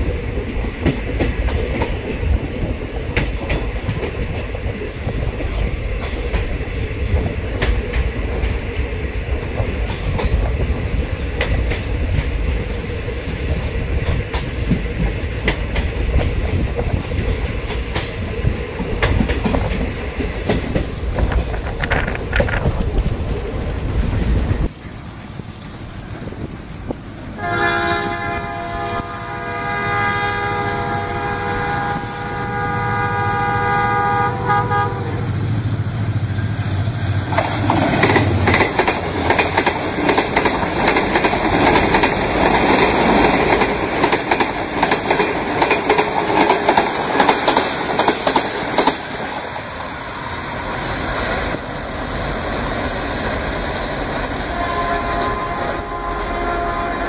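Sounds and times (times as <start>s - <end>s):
freight train rolling clatter: 0.0s - 57.0s
multi-note train horn: 27.4s - 35.4s, 54.5s - 57.0s.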